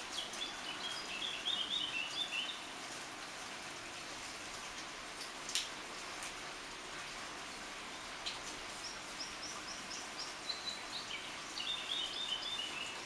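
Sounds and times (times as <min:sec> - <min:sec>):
sharp water drip: 0:00.0 - 0:13.0
steady rain hiss: 0:00.0 - 0:13.0.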